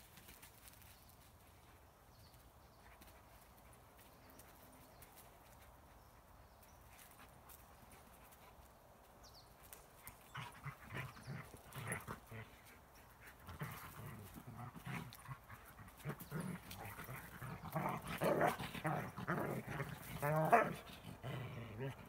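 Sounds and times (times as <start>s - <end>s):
dogs growling and huffing: 10.0s - 22.0s.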